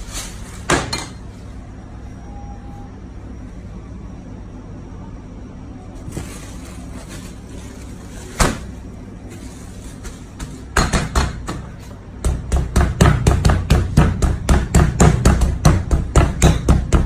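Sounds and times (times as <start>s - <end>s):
meat mallet pounding thuds: 10.7s - 17.0s.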